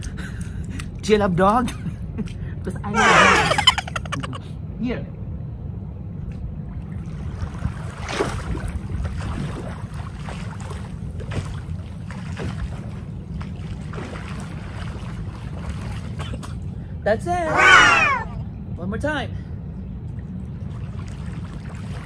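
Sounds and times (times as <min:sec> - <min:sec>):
wind rumble on microphone: 0:05.1 - 0:16.6
water splashing from swimming: 0:06.9 - 0:16.6.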